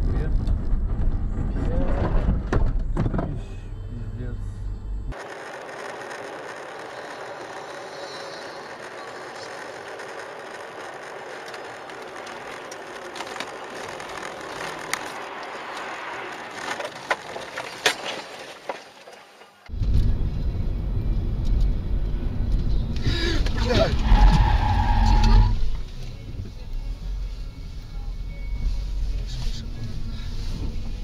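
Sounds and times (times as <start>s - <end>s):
car road and wind noise: 0.0s - 31.0s
ice clicking on windshield: 5.2s - 19.6s.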